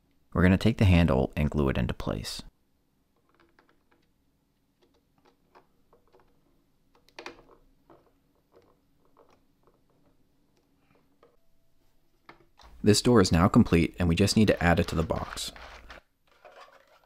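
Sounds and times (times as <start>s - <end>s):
plastic parts clicking: 3.2s - 4.2s, 4.8s - 11.4s.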